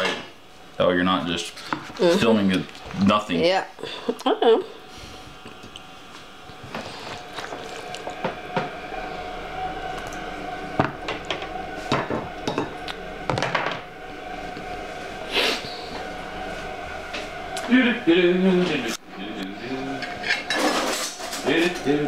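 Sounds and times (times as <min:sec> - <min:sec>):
cutlery scraping ceramic plate: 0:20.0 - 0:21.8.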